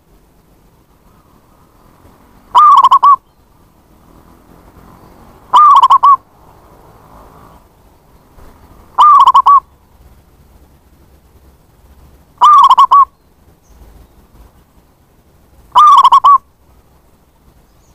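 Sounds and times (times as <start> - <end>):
dove calling quick repeated notes: 2.4 - 3.6, 5.2 - 6.5, 7.4 - 9.9, 12.2 - 14.8, 15.6 - 17.2.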